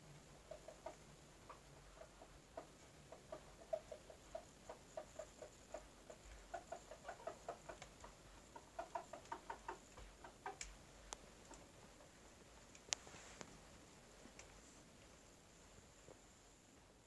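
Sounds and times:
chickens clucking softly: 0.0s - 13.6s.

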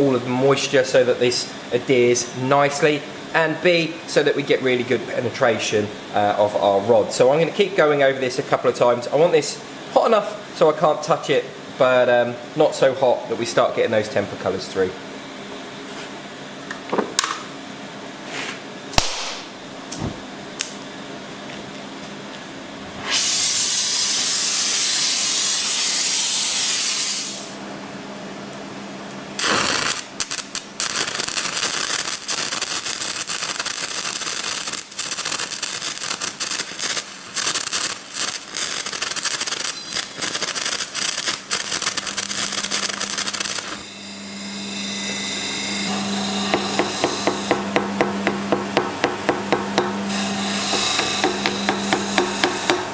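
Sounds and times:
loud steady hiss: 23.1s - 27.6s, 29.4s - 43.9s, 49.3s - 52.9s
welding arc crackling: 29.4s - 45.0s, 46.3s - 52.9s.

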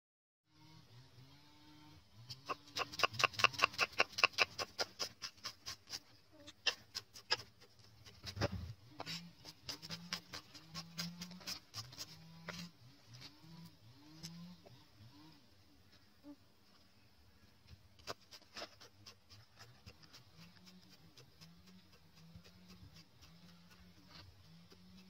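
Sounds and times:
cleaver chopping on wooden block: 2.5s - 6.0s.

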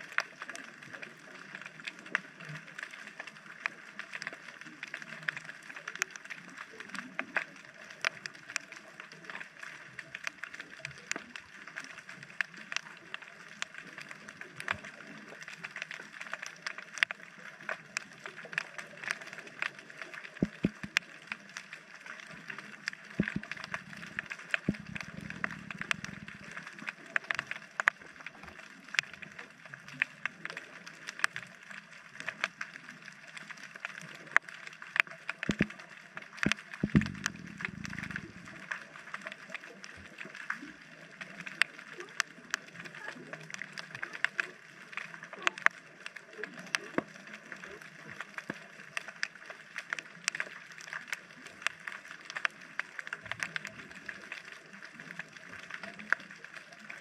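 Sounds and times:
underwater crackle of clicks: 0.0s - 57.0s
low rumbles: 23.2s - 26.6s, 36.8s - 38.7s.

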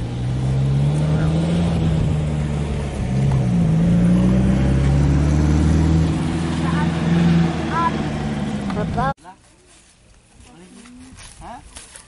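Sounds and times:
motor engine humming: 0.0s - 9.2s.

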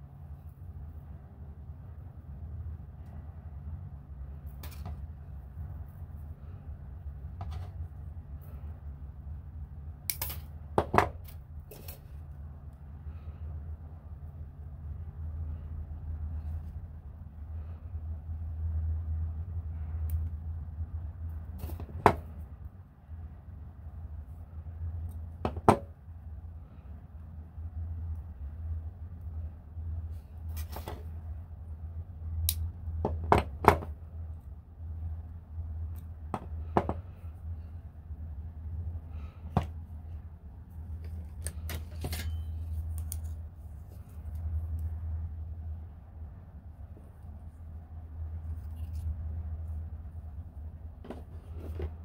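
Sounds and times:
steady low hum: 0.0s - 52.0s
wire and pliers clicking: 10.0s - 10.5s, 32.4s - 32.8s, 41.0s - 43.4s.

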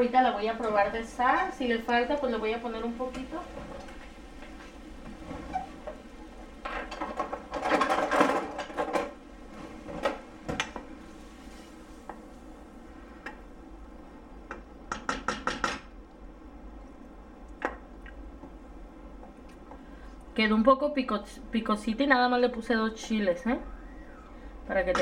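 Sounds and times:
spoon tapping pot: 14.5s - 15.9s.

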